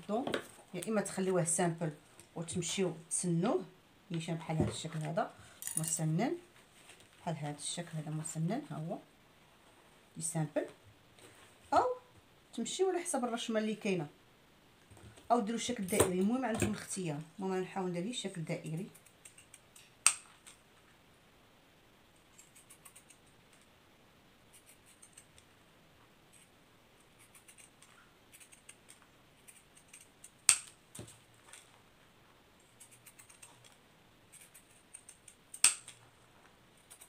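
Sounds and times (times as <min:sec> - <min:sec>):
scissors snipping paper: 0:24.6 - 0:25.4, 0:27.2 - 0:30.8, 0:32.7 - 0:36.0.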